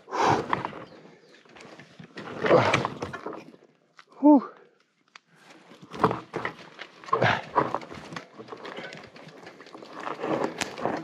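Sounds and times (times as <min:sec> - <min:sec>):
bike knocking and rattling: 0:05.6 - 0:11.0.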